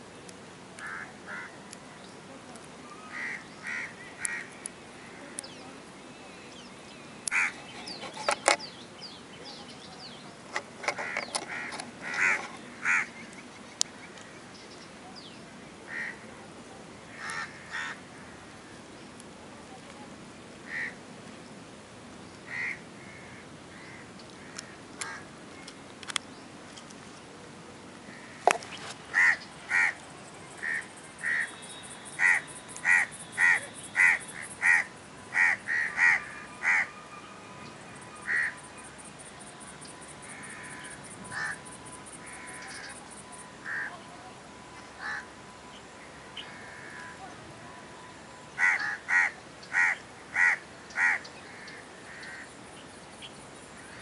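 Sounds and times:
crow cawing: 0.8s - 1.6s, 3.1s - 5.4s, 7.3s - 7.6s, 11.0s - 13.1s, 15.9s - 16.2s, 17.1s - 18.5s, 20.7s - 21.0s, 22.5s - 25.3s, 28.1s - 30.0s, 30.6s - 31.6s, 32.2s - 37.0s, 38.2s - 38.6s, 40.3s - 41.6s, 42.2s - 42.9s, 43.6s - 43.9s, 45.0s - 45.3s, 46.1s - 47.2s, 48.6s - 52.5s.

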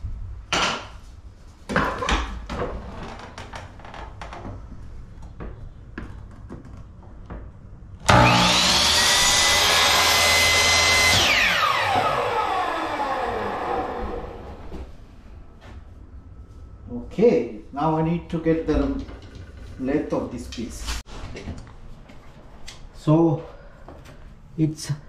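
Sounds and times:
miter saw whining: 8.0s - 14.7s.

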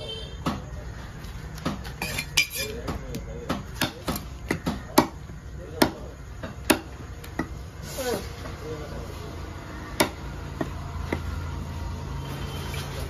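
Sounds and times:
knife chopping on wooden block: 1.6s - 7.6s.

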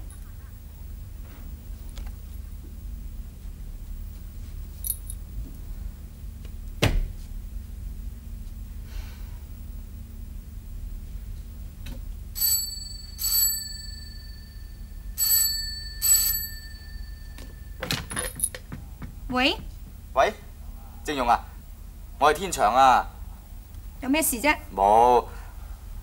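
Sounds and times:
steady low hum: 0.0s - 26.0s
telephone bell ringing: 12.4s - 18.0s.

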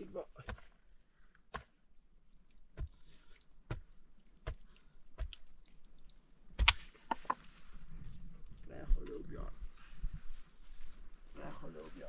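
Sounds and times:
mattock chopping into stony soil: 0.4s - 0.8s, 1.4s - 1.8s, 2.6s - 5.5s, 6.5s - 7.4s.

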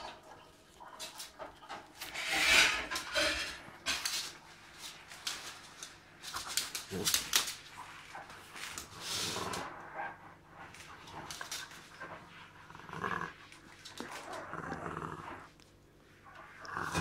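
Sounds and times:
dog gnawing a carrot: 3.9s - 17.0s.

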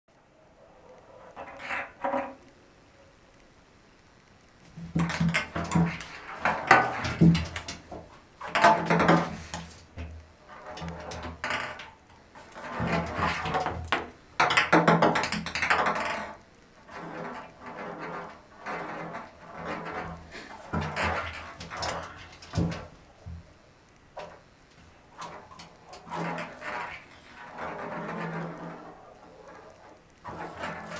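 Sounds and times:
ping pong ball clattering in bathtub: 4.8s - 12.0s.

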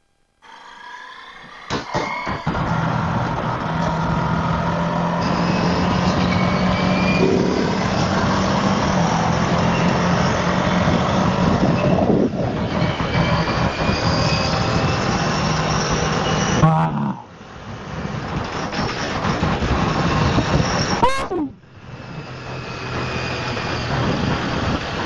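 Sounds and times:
motorcycle engine accelerating: 1.0s - 16.3s, 21.4s - 25.0s
wind rush on microphone: 10.3s - 16.2s, 17.6s - 21.1s, 22.0s - 25.0s.

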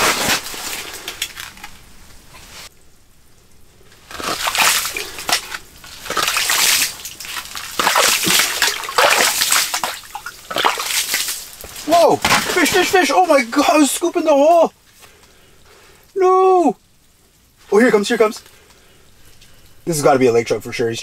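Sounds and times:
ice scoop sloshing water: 4.0s - 13.8s.

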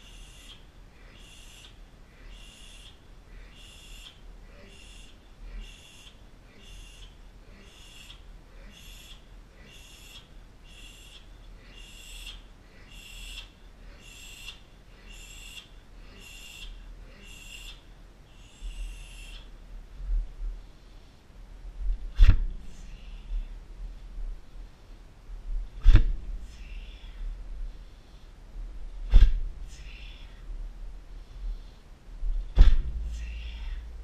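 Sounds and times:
low hum: 0.0s - 34.0s
low thump: 25.8s - 26.2s, 32.5s - 33.2s.

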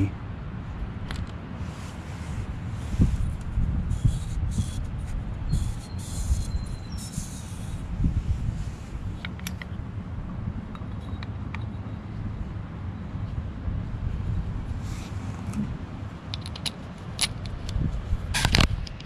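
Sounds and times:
wind on microphone: 0.7s - 11.2s, 13.3s - 16.2s, 17.3s - 19.0s.

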